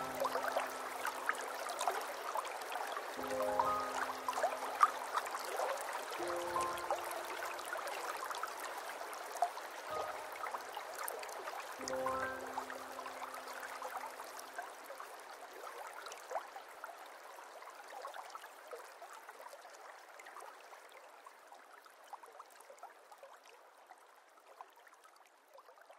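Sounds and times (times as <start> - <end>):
held note of background music: 0.0 - 1.2, 3.2 - 4.9, 6.2 - 7.5, 9.9 - 10.6, 11.8 - 13.6
water trickling and dripping: 0.0 - 25.9.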